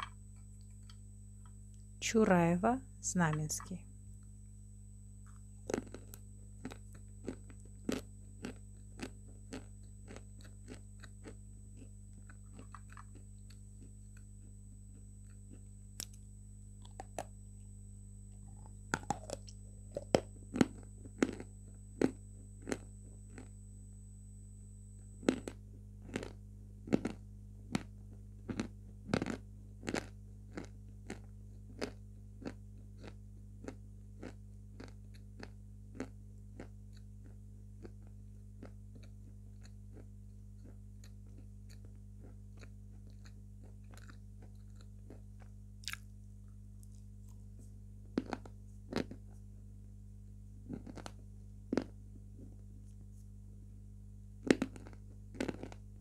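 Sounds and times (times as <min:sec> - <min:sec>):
crisp crunching while chewing: 0:05.3 - 0:13.2, 0:16.8 - 0:17.3, 0:18.6 - 0:23.5, 0:25.2 - 0:27.9, 0:28.5 - 0:46.1, 0:48.2 - 0:49.4, 0:50.7 - 0:52.0, 0:54.4 - 0:55.8.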